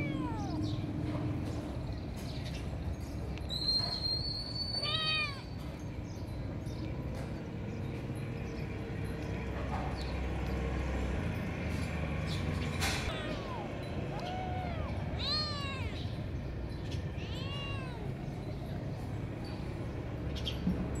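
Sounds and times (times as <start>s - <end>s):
kittens meowing: 0.0s - 1.0s, 4.6s - 5.6s, 13.1s - 18.7s.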